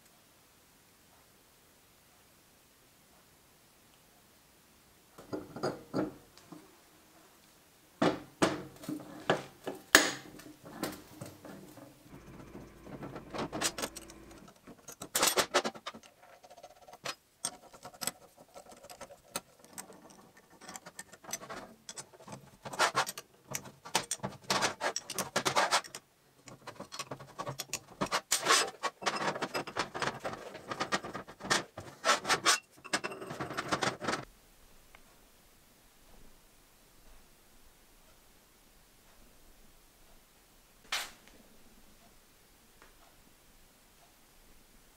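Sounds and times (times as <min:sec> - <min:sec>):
metal parts clinking and scraping: 0:10.7 - 0:34.2.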